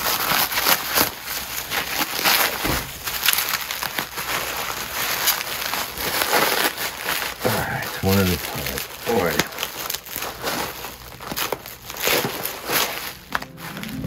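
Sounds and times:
bubble wrap crackling: 0.0 - 14.0.

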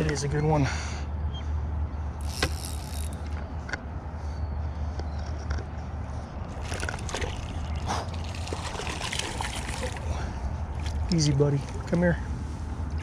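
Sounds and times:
fish splashing at water surface: 6.5 - 11.1.

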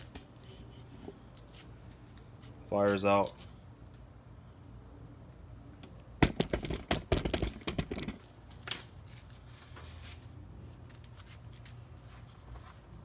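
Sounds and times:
low steady hum: 0.0 - 13.0
sharp clicks and rattles: 5.8 - 8.3.

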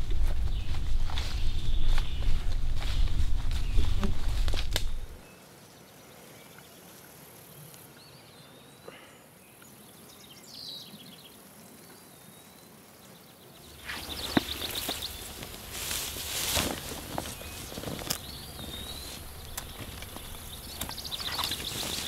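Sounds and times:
rustling through tall grass: 0.0 - 5.5, 13.6 - 22.0
thin insect hum: 0.0 - 22.0
faint bird calls: 17.3 - 22.0
high ticks: 18.0 - 22.0.

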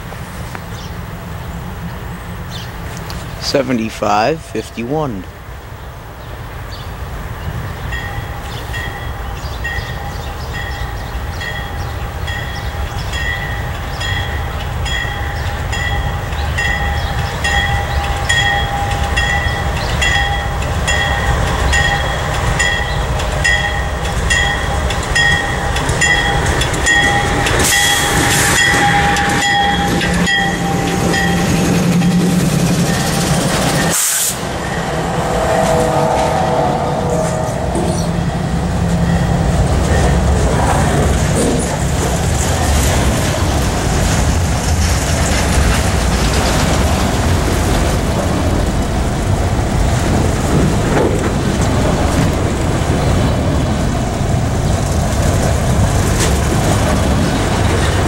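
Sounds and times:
diesel locomotives rumbling: 0.0 - 58.0
freight cars rolling past: 0.0 - 58.0
crossing bell ringing: 3.4 - 5.3, 7.8 - 40.5.

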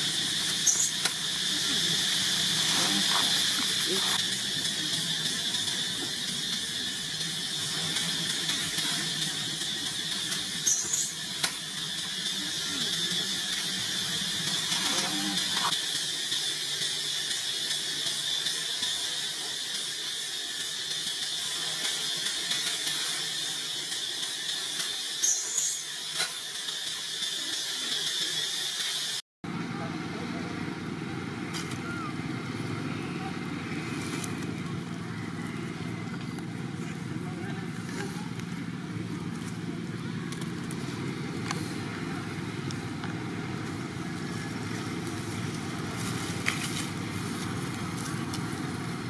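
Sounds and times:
insects droning: 0.0 - 20.4
short high squeaks: 0.5 - 1.0, 10.6 - 11.2.

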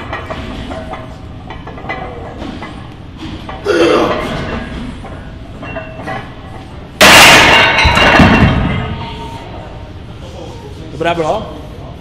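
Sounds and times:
weight plates ringing: 3.5 - 9.5.

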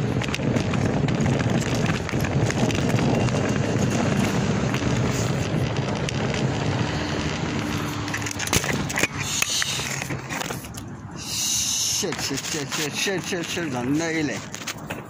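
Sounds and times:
street noise: 0.0 - 15.0
phone rubbing against jacket: 8.7 - 14.9.

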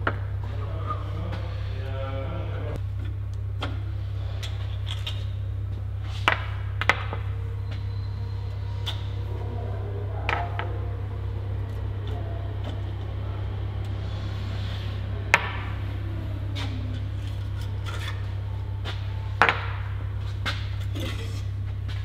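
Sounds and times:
steady low hum: 0.0 - 22.0
metal engine parts and tools clinking: 16.4 - 19.8, 20.4 - 22.0.

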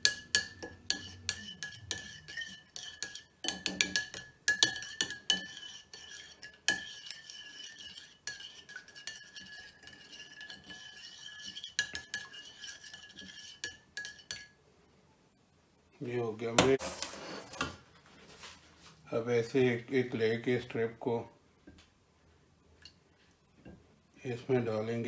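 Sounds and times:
spoon clinking in ceramic bowl: 0.0 - 7.2.

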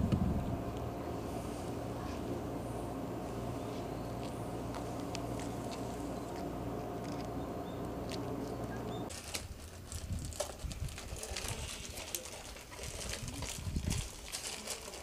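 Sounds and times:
ferry engine idling: 0.0 - 9.1
footsteps on asphalt: 3.6 - 9.1
cats' paws pattering and clicking: 9.2 - 15.0.

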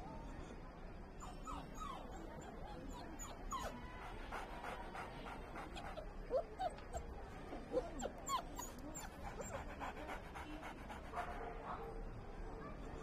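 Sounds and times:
dogs whimpering and yipping: 1.2 - 3.8, 7.7 - 9.6.

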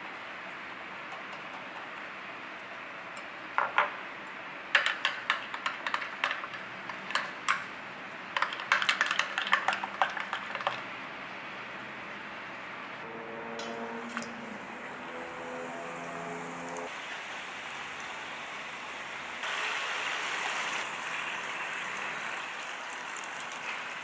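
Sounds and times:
steady hiss: 13.4 - 24.0.

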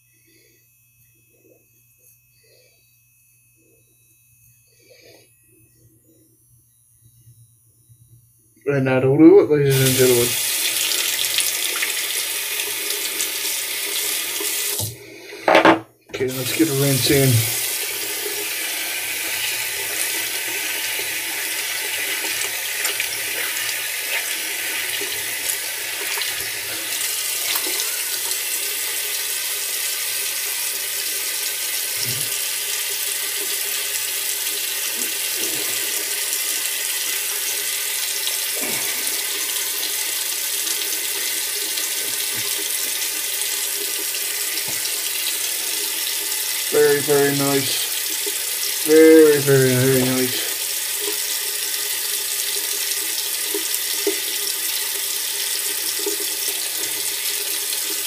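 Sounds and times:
tap running into basin: 13.8 - 28.5, 39.1 - 58.0.

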